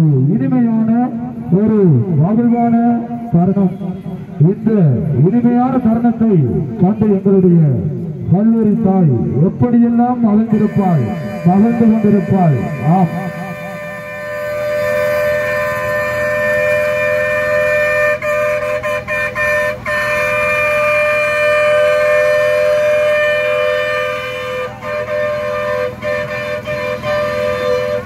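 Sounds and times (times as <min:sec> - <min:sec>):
wind instruments holding notes: 0:10.2 - 0:28.0.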